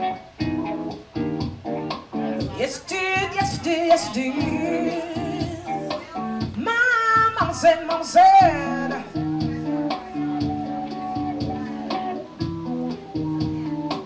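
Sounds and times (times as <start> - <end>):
guitar strummed chords: 0.0 - 14.0
person singing with vibrato: 2.5 - 12.4.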